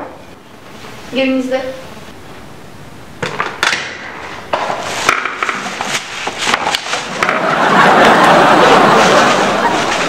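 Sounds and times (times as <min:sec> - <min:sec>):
sharp knocks and clatters: 0:03.2 - 0:07.5.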